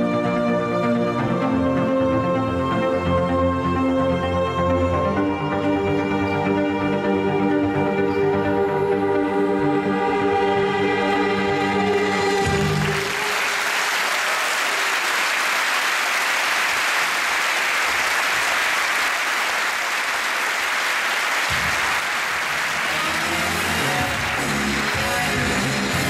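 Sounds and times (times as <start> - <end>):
music: 0.0 - 14.0, 21.4 - 26.0
audience applauding: 11.9 - 26.0.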